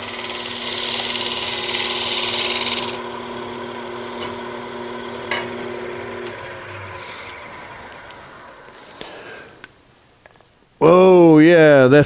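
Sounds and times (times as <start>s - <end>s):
wood lathe humming: 0.0s - 9.8s
hiss of shearing wood: 3.9s - 4.4s, 5.3s - 9.7s.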